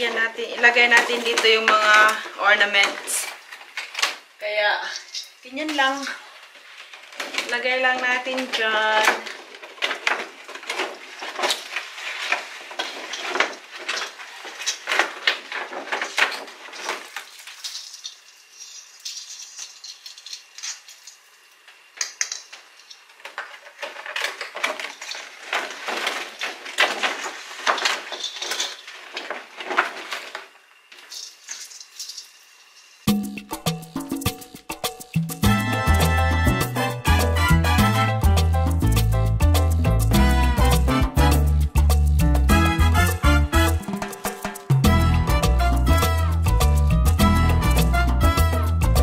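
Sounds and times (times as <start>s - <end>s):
ornaments clinking in plastic box: 7.2s - 21.2s, 22.0s - 30.4s
upbeat music: 33.1s - 49.0s.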